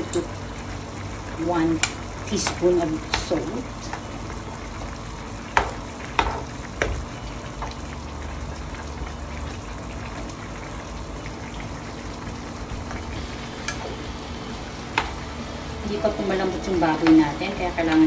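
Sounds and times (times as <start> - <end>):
stew bubbling in a pan: 0.0 - 18.0.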